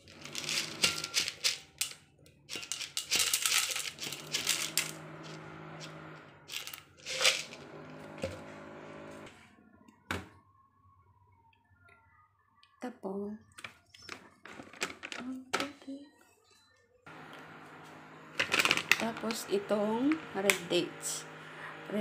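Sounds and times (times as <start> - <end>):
dried berries clattering into bowl: 0.1 - 5.0, 6.5 - 7.6, 18.4 - 19.4
low steady hum: 17.1 - 22.0.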